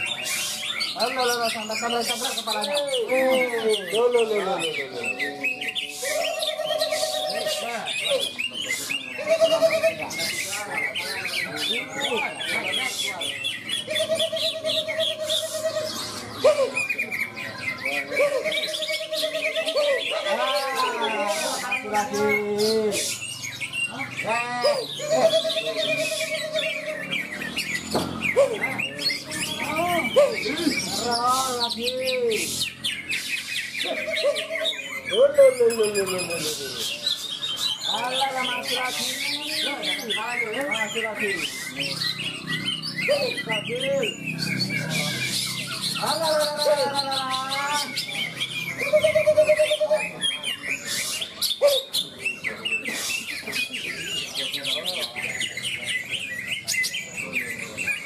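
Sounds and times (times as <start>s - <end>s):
other songbirds singing: 0.0s - 58.0s
rapid bird trill: 0.0s - 58.0s
songbird whistles and chirps: 4.7s - 11.9s.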